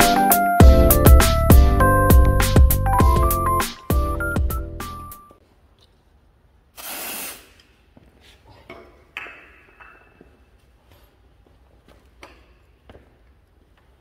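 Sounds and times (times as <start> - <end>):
pressurised spray hissing: 6.8 - 7.6.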